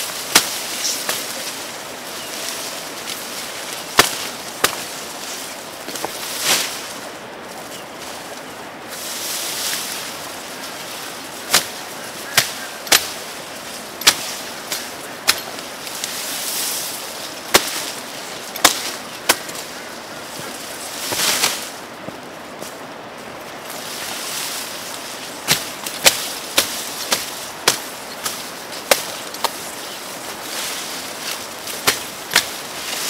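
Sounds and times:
leaves rustling: 0:00.0 - 0:33.0
grass stalks snapping: 0:00.2 - 0:01.6, 0:02.4 - 0:05.2, 0:11.4 - 0:13.2, 0:14.0 - 0:16.3, 0:25.4 - 0:33.0.

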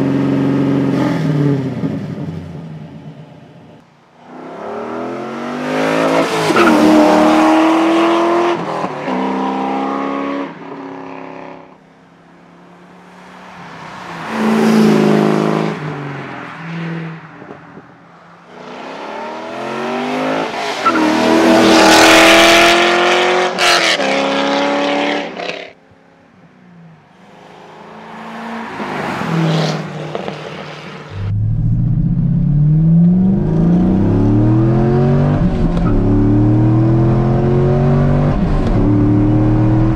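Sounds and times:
car engine accelerating hard: 0:31.1 - 0:39.9.

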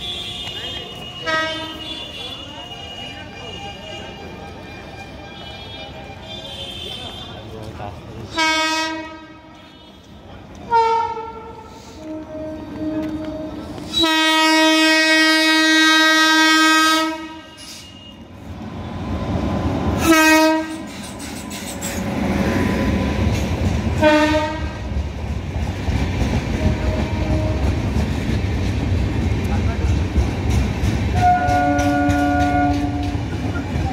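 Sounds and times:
train horn blasts: 0:00.0 - 0:07.4, 0:08.3 - 0:10.1, 0:10.7 - 0:18.3, 0:20.0 - 0:20.8, 0:24.0 - 0:24.9, 0:26.6 - 0:27.9, 0:31.1 - 0:33.4
train rumble and wheel clatter: 0:00.0 - 0:33.9.

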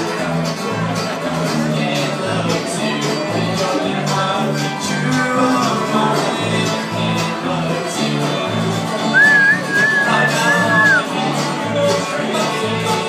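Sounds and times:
bluegrass band playing: 0:00.0 - 0:13.0
upright bass beat: 0:09.1 - 0:11.1.

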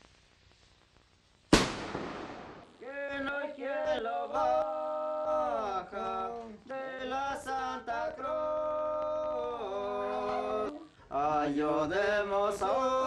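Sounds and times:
person chanting unaccompanied: 0:02.8 - 0:13.0.

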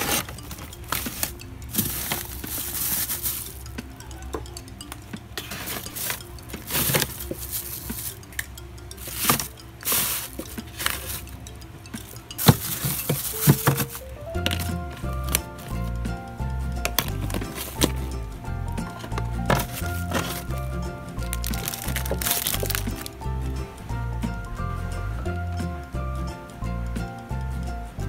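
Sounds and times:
plastic rustling: 0:00.0 - 0:04.4, 0:05.1 - 0:16.0, 0:16.8 - 0:18.2, 0:18.8 - 0:23.2
plastic tubs clacking: 0:00.0 - 0:23.4.

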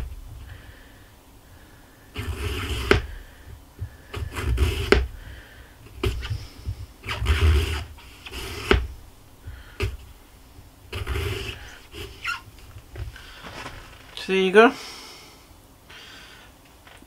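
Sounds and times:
knife slicing apple: 0:02.2 - 0:03.2, 0:04.0 - 0:05.2, 0:07.0 - 0:08.9.

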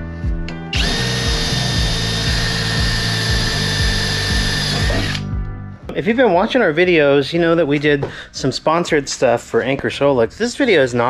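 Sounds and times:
background music with steady beat: 0:00.0 - 0:11.0
cordless drill drilling into metal: 0:00.7 - 0:05.2.

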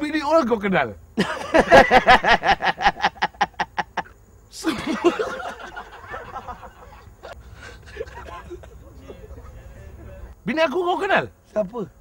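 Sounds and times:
men laughing heartily: 0:01.2 - 0:10.3.

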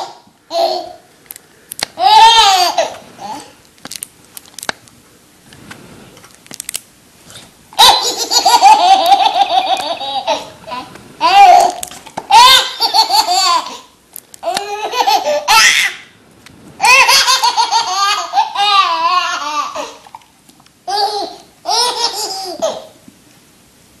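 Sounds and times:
baby laughing: 0:02.0 - 0:03.5, 0:07.8 - 0:13.8, 0:14.4 - 0:16.0, 0:16.8 - 0:20.0, 0:20.9 - 0:22.9.

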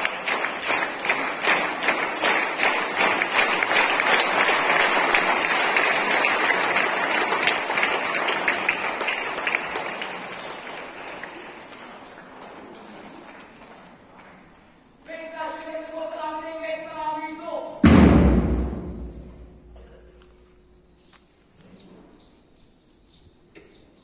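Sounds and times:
crowd applauding: 0:00.0 - 0:14.1.

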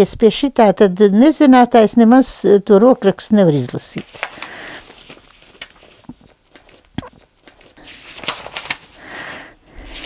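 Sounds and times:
paper pages rustling: 0:03.8 - 0:09.1, 0:09.8 - 0:10.0.

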